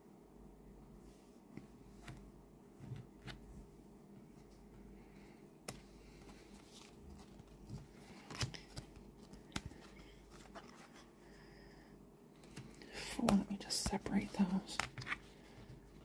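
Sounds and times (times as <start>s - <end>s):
cards clicking and rubbing: 5.7s - 11.0s, 12.4s - 15.4s.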